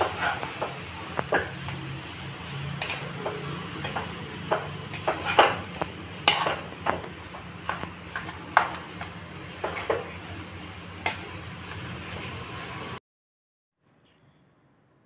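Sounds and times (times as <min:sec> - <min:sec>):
wooden spatula scraping pan: 0:00.0 - 0:01.8, 0:02.6 - 0:10.2.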